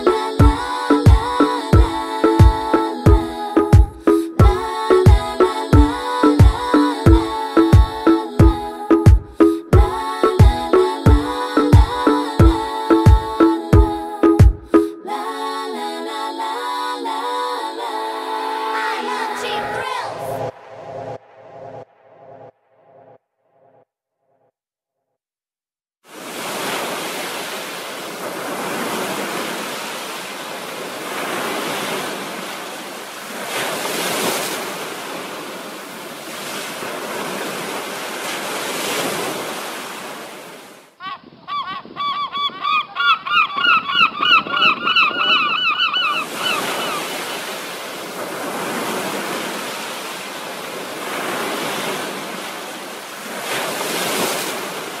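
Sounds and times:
ocean surf washing in: 0.0s - 23.2s, 26.1s - 41.0s, 46.2s - 55.0s
rapid bird calls: 41.0s - 47.1s.

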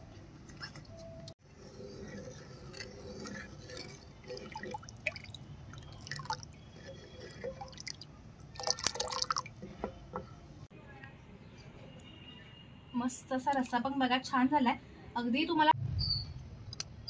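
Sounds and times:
liquid splashing and dripping: 4.3s - 6.5s, 7.6s - 9.6s.

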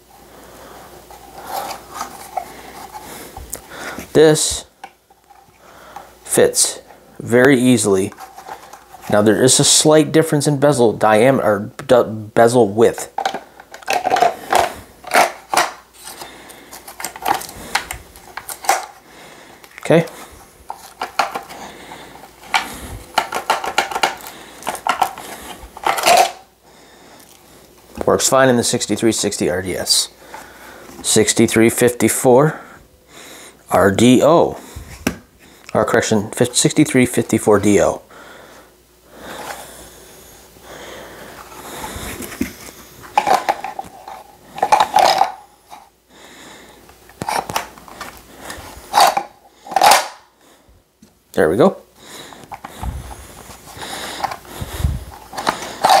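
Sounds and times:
pistol scraping and rubbing: 1.1s - 4.0s, 8.1s - 9.2s, 47.2s - 50.2s, 53.4s - 54.5s, 55.1s - 56.0s
pistol drawn with clatter: 49.0s - 50.3s.

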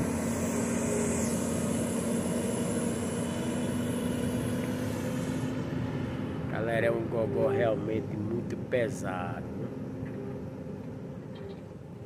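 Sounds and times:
heavy diesel truck engine labouring: 0.0s - 12.0s.

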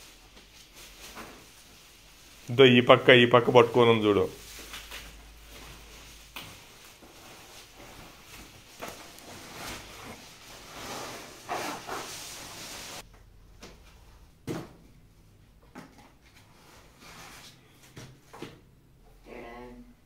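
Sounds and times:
packing material rustling: 0.0s - 13.0s.

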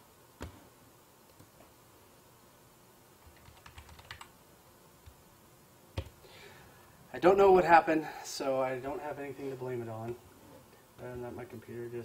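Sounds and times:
keyboard typing: 3.2s - 4.3s.

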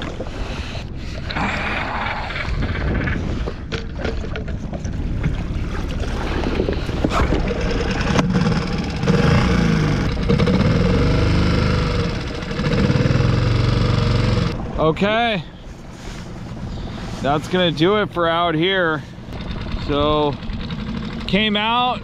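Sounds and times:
outboard motor running: 0.0s - 22.0s
water splashing: 1.0s - 13.1s
wind on microphone: 1.4s - 3.8s.

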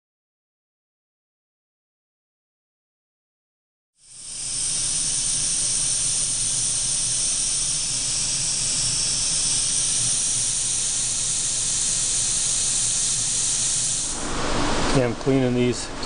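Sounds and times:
steady hissing: 4.0s - 15.1s.

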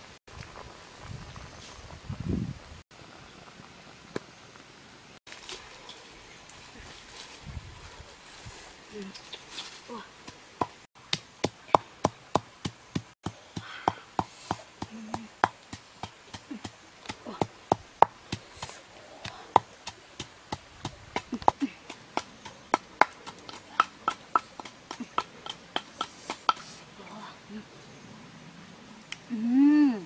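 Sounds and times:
wooden pestle pounding in mortar: 20.5s - 26.6s.

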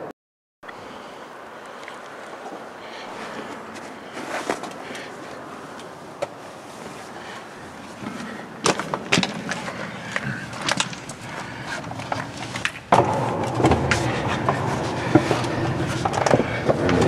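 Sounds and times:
sharp knocks on concrete: 12.7s - 15.3s.

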